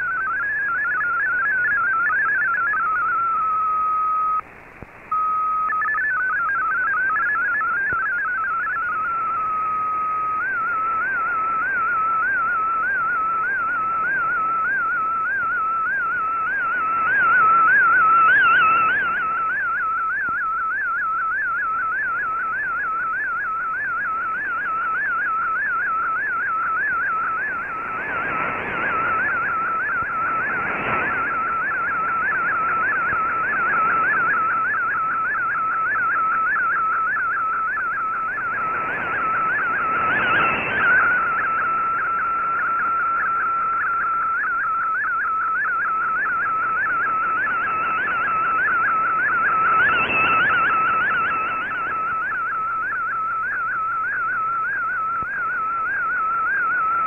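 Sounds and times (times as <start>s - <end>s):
warbling data tone: 0.0s - 4.4s, 5.0s - 57.0s.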